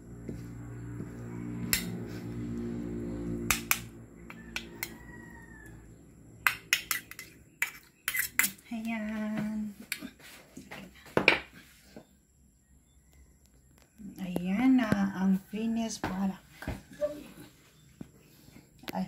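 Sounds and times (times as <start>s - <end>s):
metal spoons clinking and scraping: 6.5s - 8.6s.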